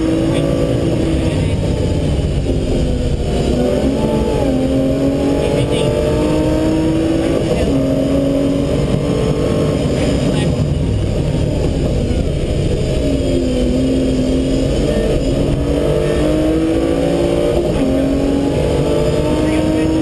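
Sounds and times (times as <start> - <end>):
rally car engine revving: 0.0 - 20.0
road and tyre noise: 0.0 - 20.0.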